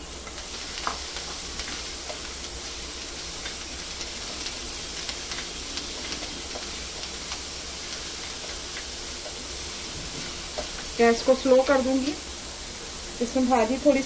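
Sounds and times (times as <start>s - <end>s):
vegetables sizzling in a pan: 0.0s - 14.0s
spatula clicking and scraping pan: 0.2s - 2.5s, 3.4s - 9.4s.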